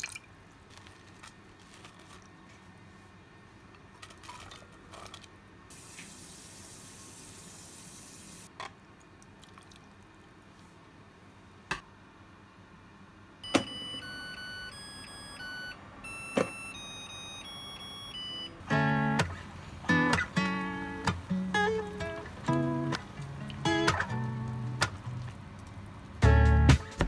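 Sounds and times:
water running: 0:05.7 - 0:08.5, 0:20.4 - 0:26.3
rice cooker beep melody: 0:13.4 - 0:19.3.

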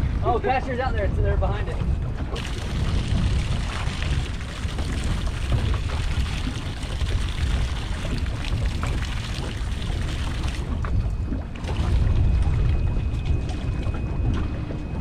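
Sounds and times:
wind buffeting microphone: 0:00.0 - 0:15.0
fish splashing in water: 0:02.3 - 0:14.2.

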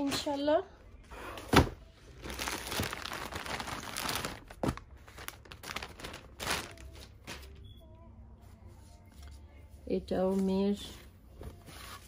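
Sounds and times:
plastic bag crinkling: 0:02.2 - 0:07.6.

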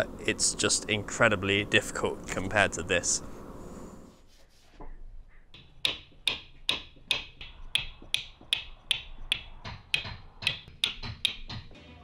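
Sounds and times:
mallet striking caulking iron: 0:05.6 - 0:11.8.

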